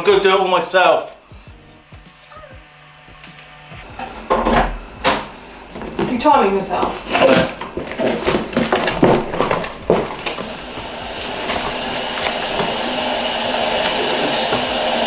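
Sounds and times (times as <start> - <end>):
packaging rustling: 6.8 - 12.9.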